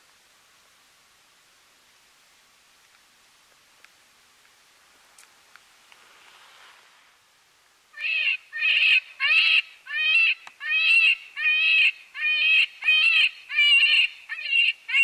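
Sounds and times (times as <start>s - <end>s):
predator call distress cries: 7.9s - 15.0s.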